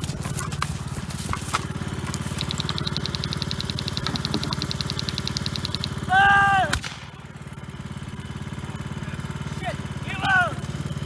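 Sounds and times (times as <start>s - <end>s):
small petrol engine running: 0.0s - 11.0s
fast even ticking: 1.7s - 6.3s.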